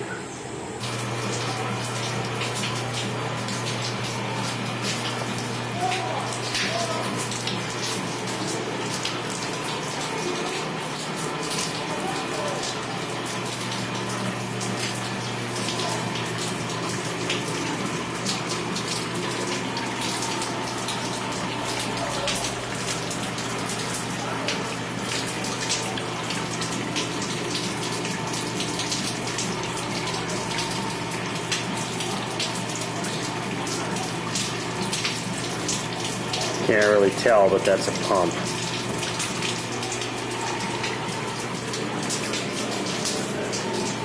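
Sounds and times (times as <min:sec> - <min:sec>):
pumping machinery hum: 0:00.0 - 0:44.0
water rushing and splashing: 0:00.8 - 0:44.0.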